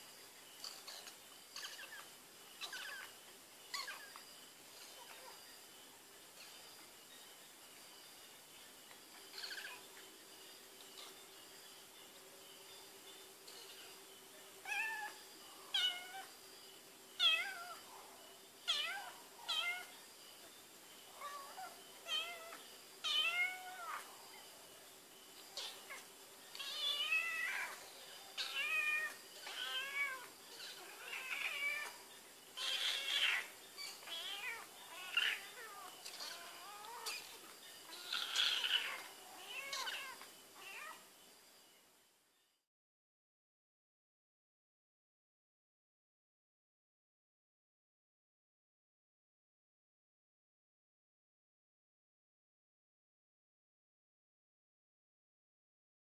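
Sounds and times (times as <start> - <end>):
cat meowing: 14.7 - 15.2, 18.7 - 19.9, 21.2 - 24.0, 28.4 - 31.9, 32.6 - 37.2, 37.9 - 41.0.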